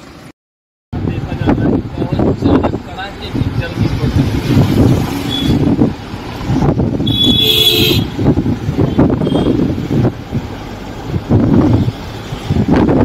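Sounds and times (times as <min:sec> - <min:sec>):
road and engine rumble inside car: 0:01.0 - 0:07.3, 0:08.1 - 0:13.0
vehicle horn: 0:07.0 - 0:08.2, 0:09.0 - 0:09.7.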